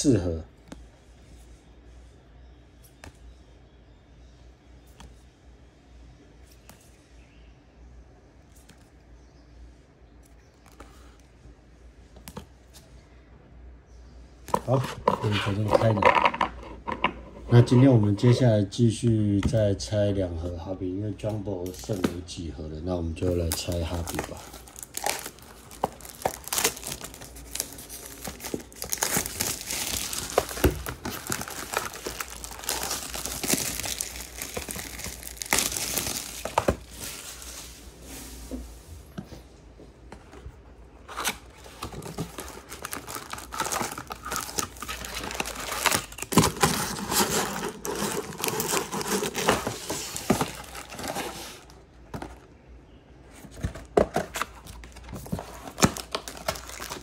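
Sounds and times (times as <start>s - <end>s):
plastic packaging crinkling and tearing: 23.2s - 37.6s, 41.1s - 51.8s, 54.3s - 57.0s.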